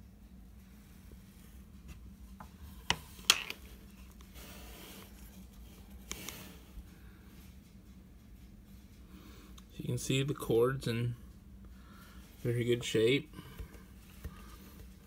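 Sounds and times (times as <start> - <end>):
soft rubbing: 0.6 - 7.7.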